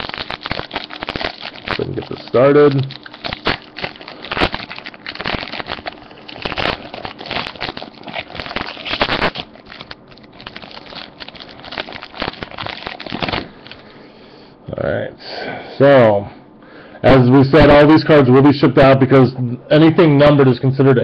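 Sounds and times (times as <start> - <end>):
foil wrapper crinkling: 0.0 - 14.0.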